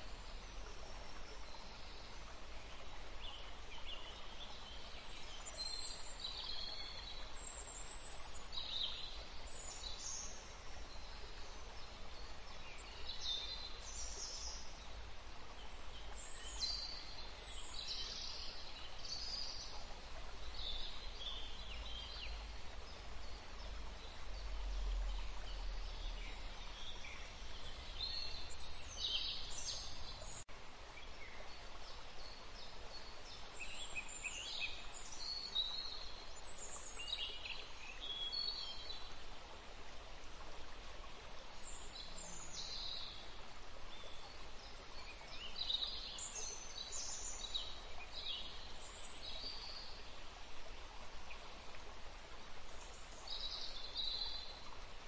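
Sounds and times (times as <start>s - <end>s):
steady hiss: 0.0s - 4.2s.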